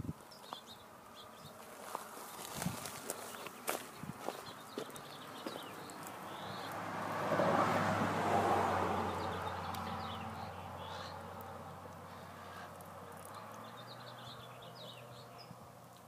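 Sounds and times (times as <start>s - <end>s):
small birds chirping: 0.0s - 7.8s, 8.5s - 16.0s
vehicle passing: 1.8s - 16.0s.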